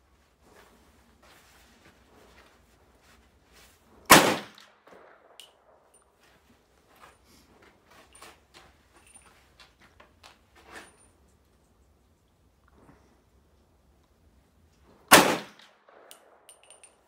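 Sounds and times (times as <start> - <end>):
rifle shot with echo: 4.1 - 5.4, 15.1 - 16.5.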